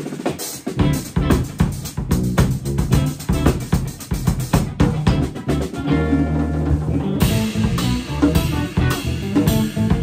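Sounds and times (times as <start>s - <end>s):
drum kit: 0.0s - 10.0s
electric bass: 0.6s - 10.0s
electric guitar: 0.7s - 1.8s, 2.8s - 3.9s, 4.6s - 10.0s.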